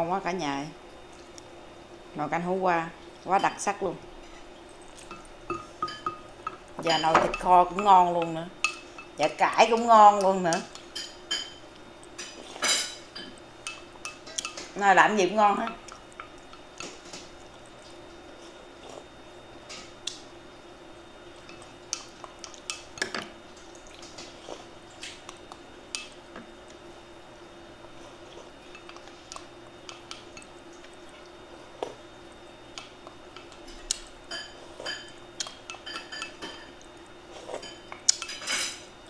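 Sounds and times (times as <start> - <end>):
faint steady hum: 0.0 - 39.0
utensils clinking on ceramic dishes: 5.0 - 11.6, 34.3 - 36.8.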